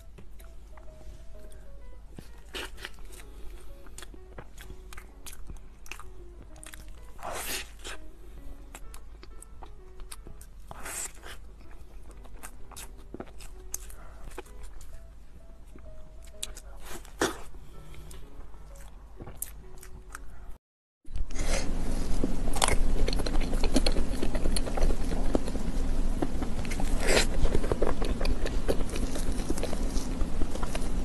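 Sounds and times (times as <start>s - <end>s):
background hiss and hum: 0.0s - 31.0s
biting and chewing: 2.2s - 8.0s, 8.7s - 15.0s, 15.7s - 20.5s, 21.2s - 31.0s.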